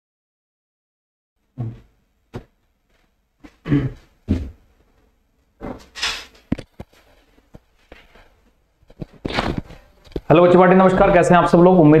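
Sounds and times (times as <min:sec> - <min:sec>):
microphone handling thumps: 0:01.6 - 0:02.6, 0:03.4 - 0:04.6, 0:08.9 - 0:10.3.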